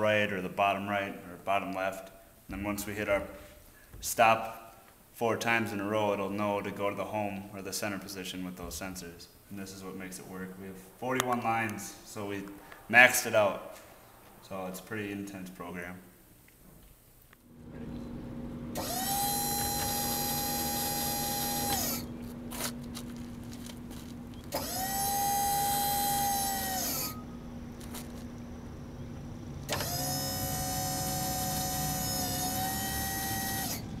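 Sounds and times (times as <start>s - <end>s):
steady low hum: 17.1s - 34.0s
electric hydraulic pump whining: 17.5s - 34.0s.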